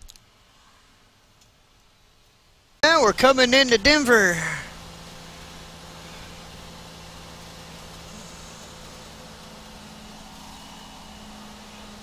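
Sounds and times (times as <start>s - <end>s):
road noise: 0.0s - 12.0s
truck engine drone: 2.8s - 12.0s.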